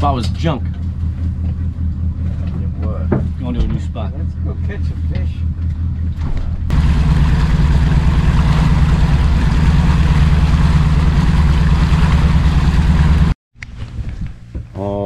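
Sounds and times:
outboard motor droning: 0.0 - 13.4
rushing water from wake: 6.7 - 13.4.

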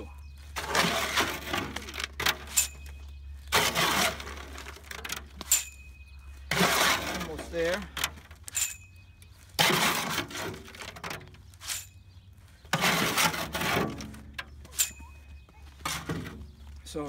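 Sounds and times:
trowel scraping wet concrete: 0.6 - 2.8, 3.5 - 5.6, 6.5 - 7.8, 9.6 - 11.9, 12.7 - 14.2
sharp metallic clinks: 2.4 - 3.4, 5.3 - 7.6, 8.4 - 9.3, 11.6 - 12.2, 14.6 - 15.5.

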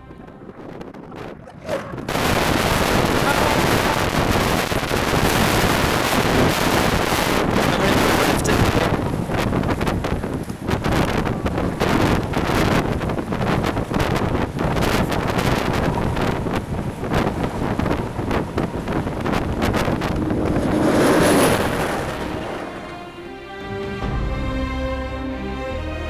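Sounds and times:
wind buffeting microphone: 0.0 - 24.3
vehicle passing on road: 15.8 - 23.5.

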